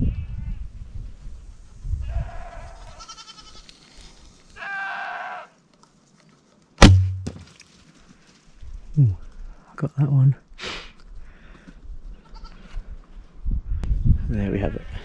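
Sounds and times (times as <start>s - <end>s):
goats bleating: 2.1s - 3.7s, 4.6s - 5.6s
arrow knock: 6.8s - 7.5s.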